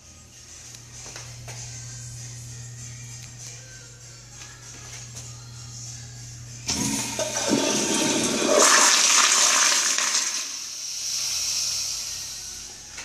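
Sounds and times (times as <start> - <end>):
toilet flushing: 6.7 - 11.6.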